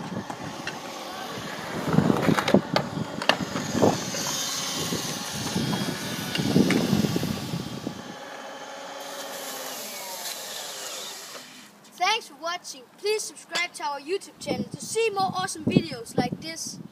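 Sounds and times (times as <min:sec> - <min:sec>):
wheel rolling over concrete: 0:00.0 - 0:07.8
power drill whirring: 0:00.0 - 0:11.8.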